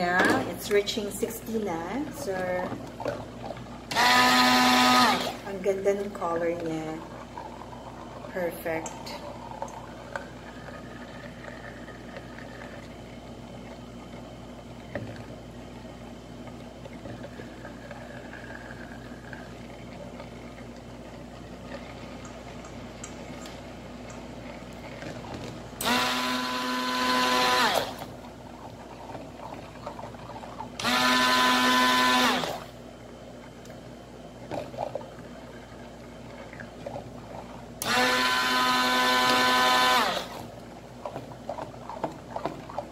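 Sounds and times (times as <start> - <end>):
low steady hum: 0.0 - 42.9
stick blender motor whining: 3.9 - 5.4, 25.8 - 28.1, 30.8 - 32.7, 37.8 - 40.4.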